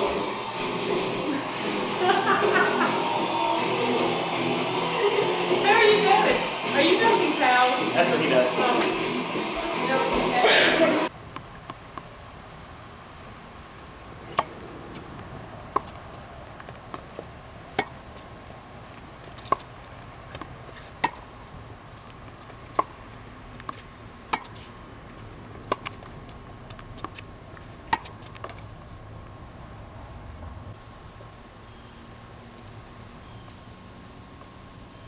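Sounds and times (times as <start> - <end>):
tennis ball bouncing: 14.3 - 18.2, 19.2 - 21.3, 22.0 - 23.0, 23.6 - 24.7, 25.6 - 28.6
tennis ball hit with rackets: 15.7 - 16.0, 16.9 - 18.0, 19.3 - 19.7, 20.3 - 21.2, 22.7 - 22.9, 23.6 - 24.7, 25.6 - 26.0, 27.9 - 28.6.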